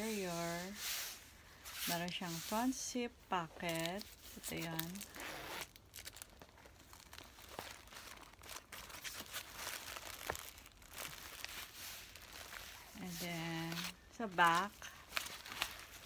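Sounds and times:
tissue and plastic crinkling: 0.0 - 16.0.

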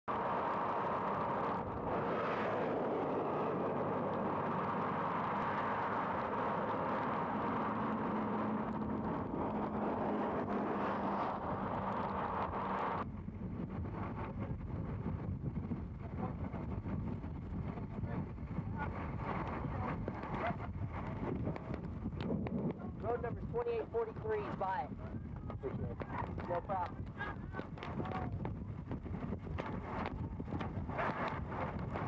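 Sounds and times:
highway traffic rushing: 0.1 - 14.2
wind on microphone: 0.1 - 32.0.

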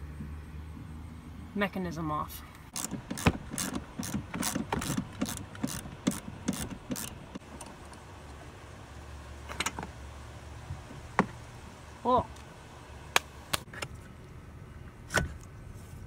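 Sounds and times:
socket ratchet clicking: 2.7 - 7.2.

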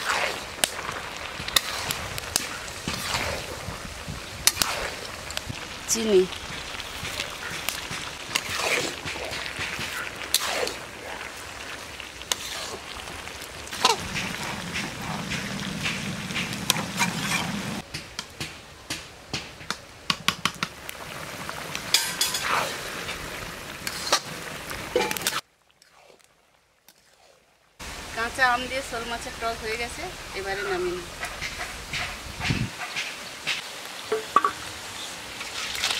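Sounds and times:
spatula scraping a pan: 0.0 - 3.6, 7.0 - 11.3, 12.2 - 12.9, 13.7 - 17.8
curry bubbling: 0.0 - 17.9, 20.4 - 29.0
vegetables sizzling in a pan: 0.0 - 17.9, 20.7 - 26.2, 26.9 - 35.9.

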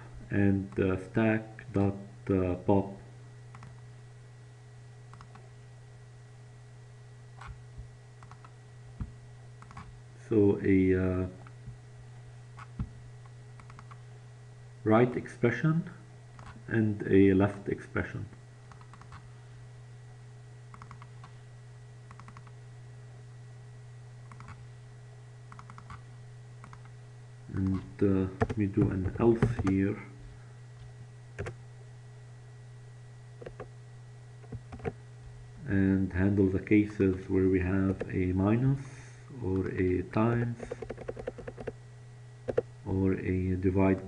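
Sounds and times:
steady low hum: 0.0 - 44.0
computer mouse clicks: 3.5 - 3.8, 5.1 - 5.4, 8.2 - 8.6, 9.6 - 9.9, 13.6 - 14.0, 18.7 - 19.2, 20.7 - 21.3, 22.1 - 22.5, 24.2 - 24.6, 25.5 - 26.0, 26.6 - 26.9, 31.4 - 31.6, 33.4 - 33.7, 34.4 - 35.0, 40.6 - 41.8, 42.5 - 42.7.

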